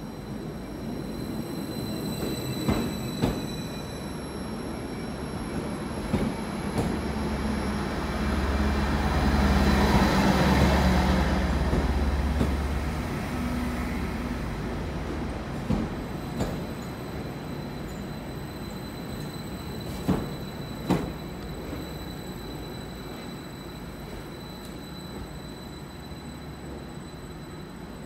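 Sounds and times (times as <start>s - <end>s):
train rolling past: 0.0s - 28.0s.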